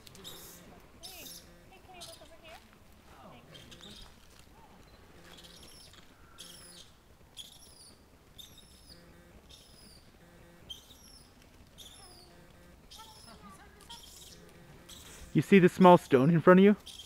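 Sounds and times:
songbird twittering: 0.2s - 2.5s, 3.4s - 4.2s, 4.8s - 15.2s.

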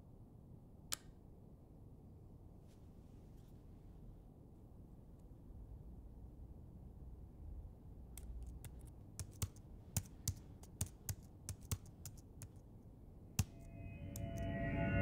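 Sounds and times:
laptop keyboard typing: 8.1s - 12.7s
low steady hum: 12.8s - 15.0s.

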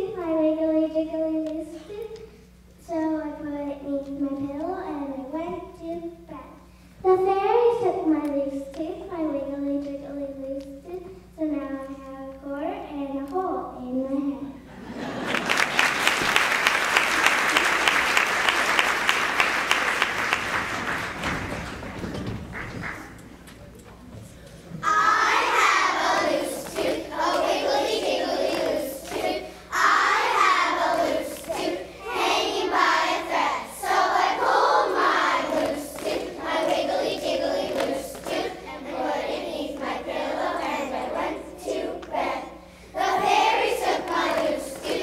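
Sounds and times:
children singing in unison: 24.8s - 42.4s, 43.0s - 45.0s.

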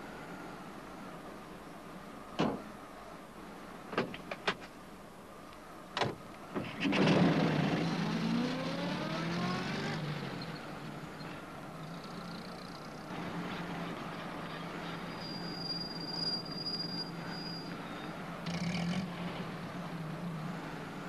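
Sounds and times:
van engine starting and pulling away: 6.5s - 14.8s.

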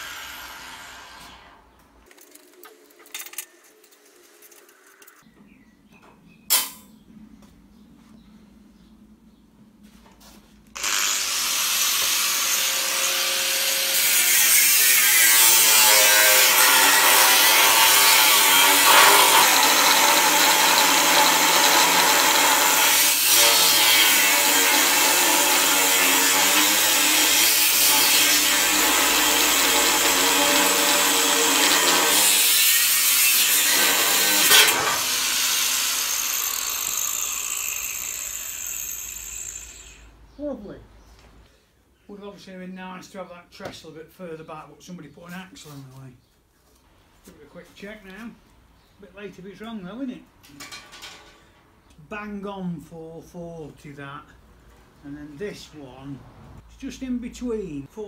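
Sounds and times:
angle grinder cutting steel: 0.0s - 1.6s, 10.8s - 40.1s.

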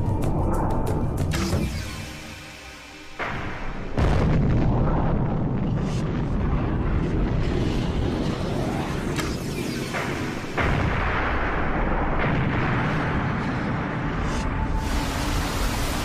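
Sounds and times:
loud explosive rumble: 3.3s - 8.9s.

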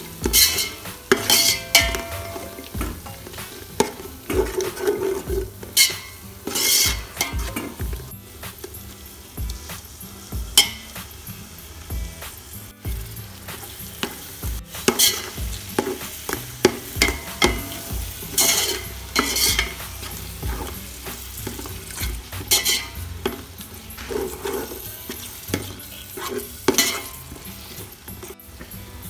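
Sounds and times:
food sizzling: 0.0s - 29.0s
metal spoon scraping pot: 0.2s - 7.9s, 16.7s - 28.4s.

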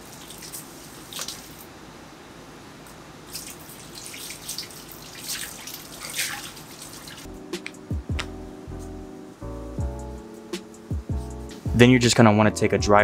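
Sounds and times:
water splashing on metal wheel: 3.3s - 7.3s.

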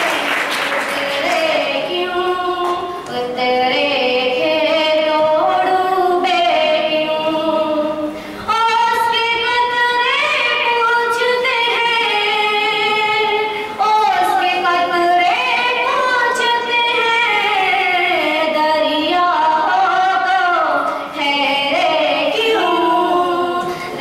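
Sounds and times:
applause: 0.0s - 1.7s
girl singing unaccompanied: 0.8s - 24.0s.

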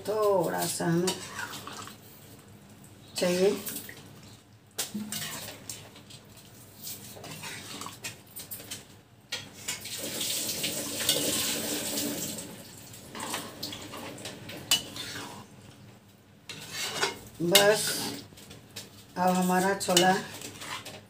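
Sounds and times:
gravy sloshing: 0.4s - 8.8s
metal spatula scraping pan: 0.6s - 2.0s, 4.9s - 5.9s, 6.9s - 8.2s, 13.1s - 15.5s, 16.5s - 18.2s, 19.3s - 21.0s.

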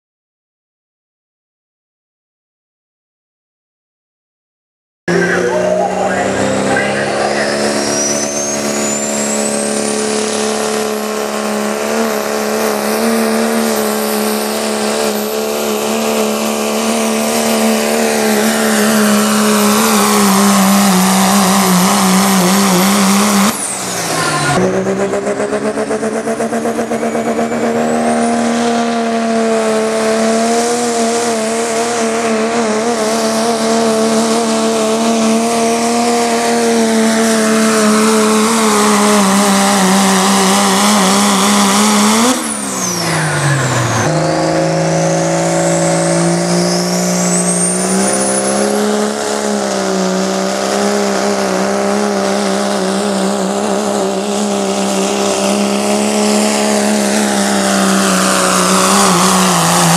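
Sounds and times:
turbo whistle: 5.1s - 10.6s, 42.4s - 48.9s
diesel truck engine drone: 5.1s - 59.9s.

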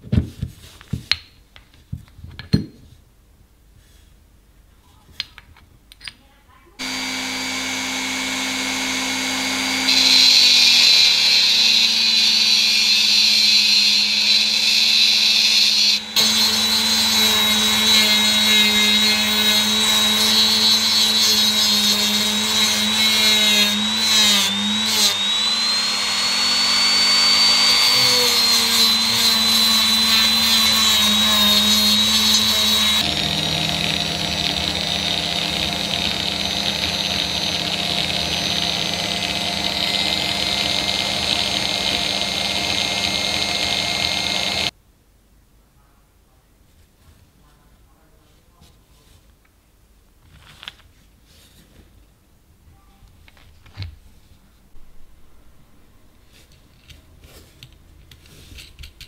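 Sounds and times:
rotary tool grinding steel: 6.8s - 44.7s.

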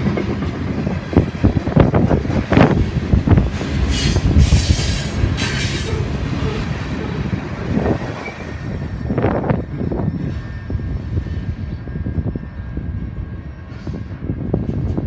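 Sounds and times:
train rumbling: 0.0s - 15.0s
high wheel squeal: 3.8s - 12.6s.

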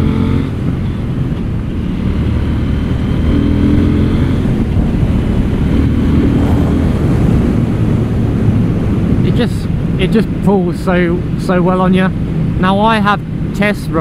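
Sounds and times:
motorcycle engine running: 0.0s - 10.2s.

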